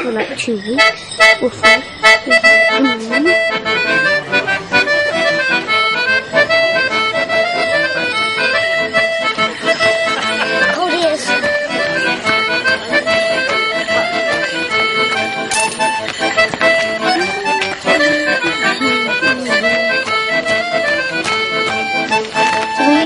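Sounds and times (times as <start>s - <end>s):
accordion dance tune: 0.0s - 23.0s.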